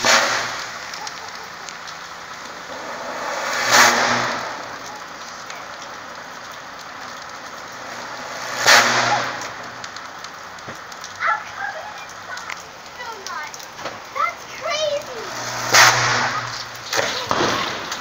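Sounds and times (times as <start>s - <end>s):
power line arcing crackle: 0.0s - 18.0s
loud electrical buzzing surge: 2.1s - 5.2s, 15.3s - 18.0s.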